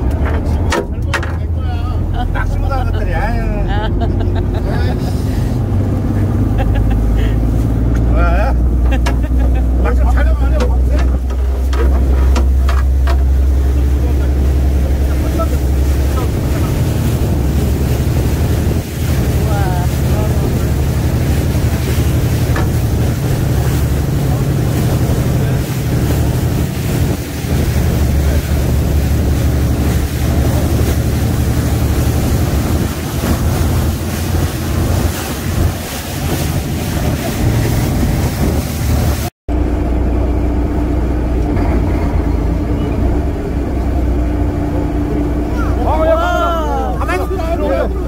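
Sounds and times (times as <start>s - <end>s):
boat engine running: 0.0s - 48.0s
sea water rushing: 0.0s - 48.0s
wind noise on microphone: 15.7s - 39.3s.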